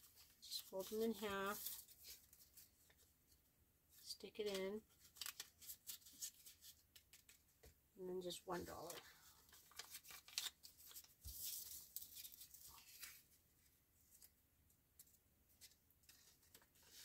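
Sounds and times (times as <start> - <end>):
paper money rustling: 0.0 - 2.8, 4.5 - 7.4, 8.8 - 13.3.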